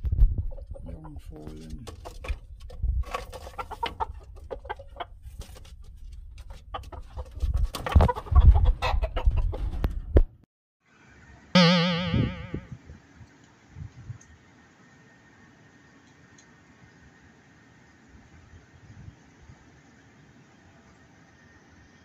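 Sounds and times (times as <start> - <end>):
knocks and scrapes: 0.0 - 8.2
loud wavering call: 11.6 - 12.7.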